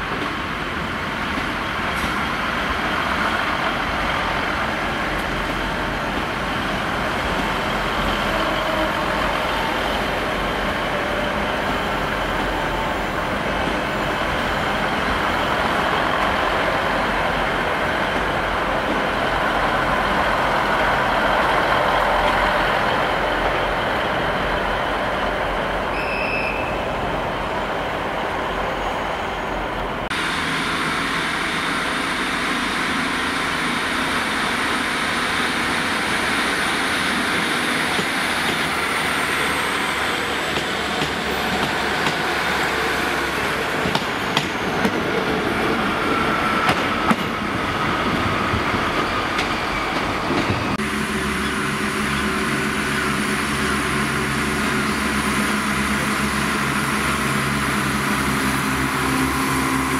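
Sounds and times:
diesel train arriving at platform: 0:00.0 - 0:59.9
diesel train rumbling past: 0:00.0 - 0:59.9
short high beep: 0:26.0 - 0:26.7.

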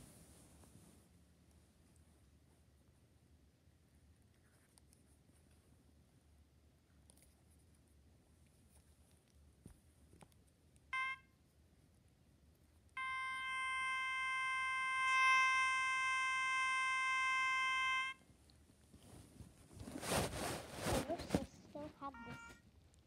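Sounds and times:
electronic toy beeps: 0:11.0 - 0:11.3, 0:13.0 - 0:18.2, 0:22.1 - 0:22.6.

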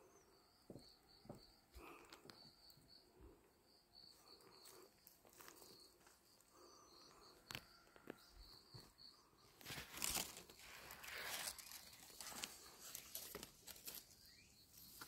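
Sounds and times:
bamboo leaves crackling and rustling: 0:09.6 - 0:15.0.

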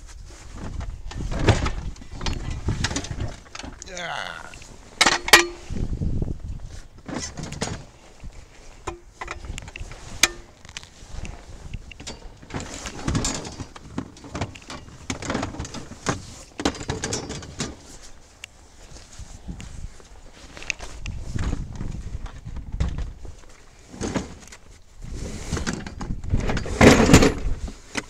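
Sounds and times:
rustling: 0:00.0 - 0:16.8, 0:17.5 - 0:22.6.

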